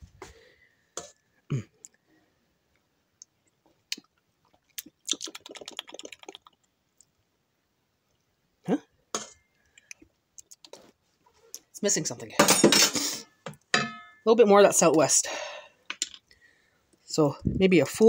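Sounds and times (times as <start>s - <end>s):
wet mouth smacks: 3.9s - 6.7s.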